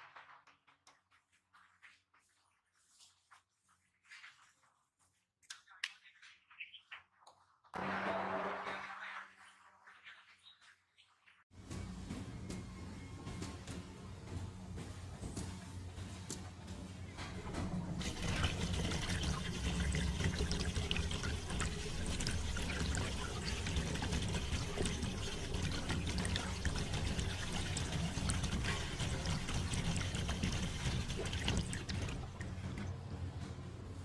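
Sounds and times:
liquid pouring into a mould: 18.0 - 32.9.

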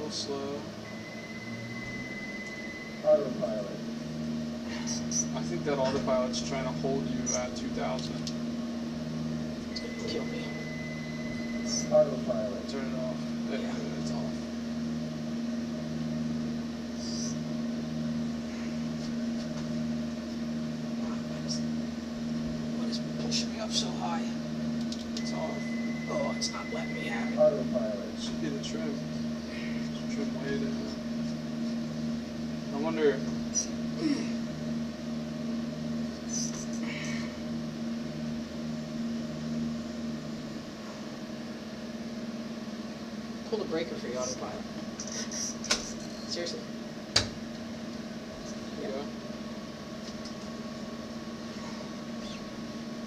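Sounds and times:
low pulsing tone: 0.0 - 8.2, 8.8 - 40.6
simulator cabin drone: 0.0 - 53.0.

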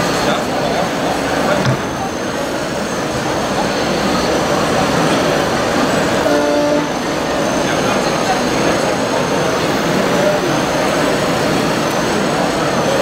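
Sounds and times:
short horn toot: 6.2 - 7.1.

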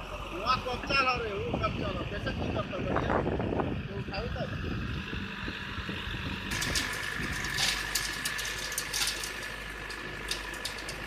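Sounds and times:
diesel engine running under load: 0.0 - 11.0
bamboo stems crackling and snapping: 6.5 - 11.0.

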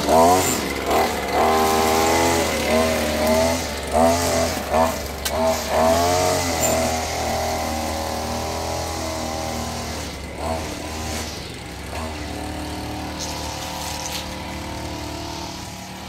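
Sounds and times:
string trimmer engine revving: 0.0 - 16.0.

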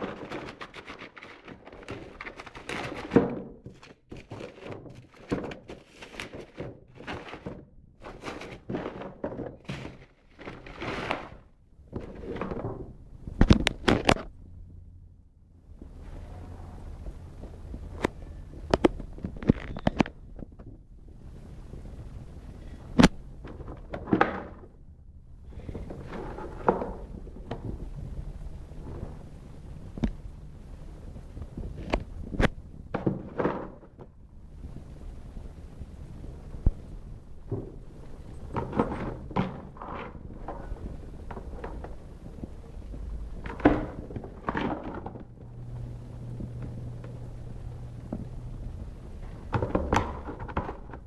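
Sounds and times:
cardboard scraping swishes: 0.0 - 12.8
low steady rumble: 0.0 - 51.0.

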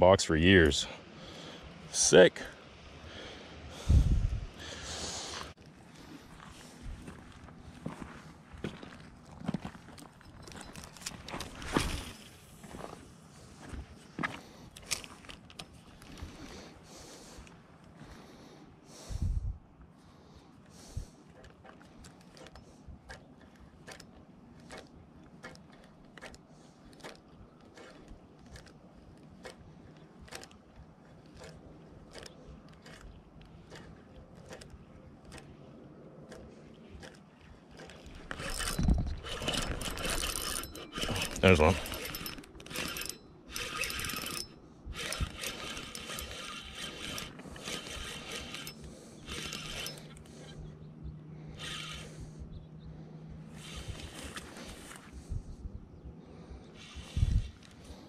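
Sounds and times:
fishing reel clicking: 23.8 - 27.2, 27.8 - 28.8, 31.3 - 35.5, 37.0 - 50.6, 51.5 - 52.2.

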